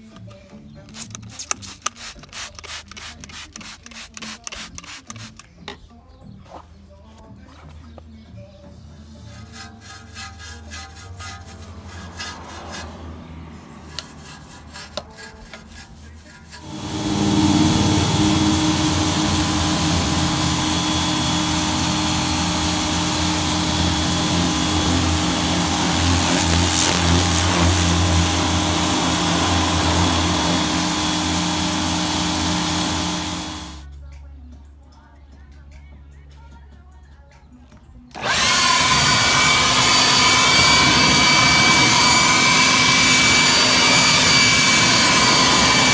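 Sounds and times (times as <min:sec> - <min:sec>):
brush scrubbing a wet wheel: 0:09.0 - 0:33.8
pressure washer humming: 0:16.6 - 0:33.8, 0:38.2 - 0:45.9
water jet rinsing: 0:16.6 - 0:33.8.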